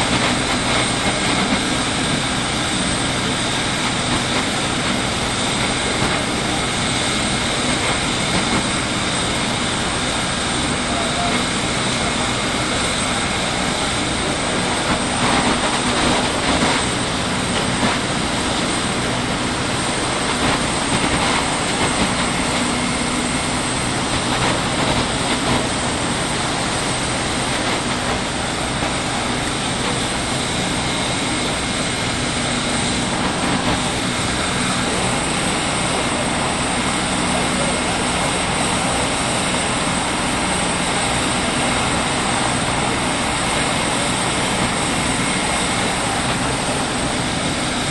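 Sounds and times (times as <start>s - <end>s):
engines idling drone: 0.0s - 47.9s.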